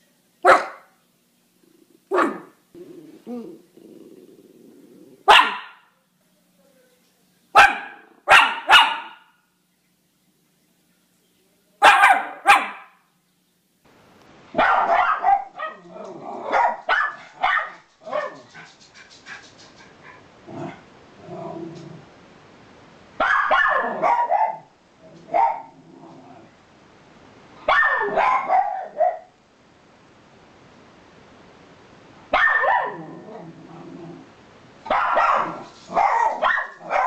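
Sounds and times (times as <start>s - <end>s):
dog barking: 0.4s - 1.0s, 2.1s - 2.6s, 5.2s - 5.9s, 7.5s - 9.4s, 11.8s - 13.0s, 14.5s - 18.6s, 23.2s - 24.7s, 25.3s - 25.7s, 27.6s - 29.4s, 32.3s - 33.1s, 34.8s - 37.0s.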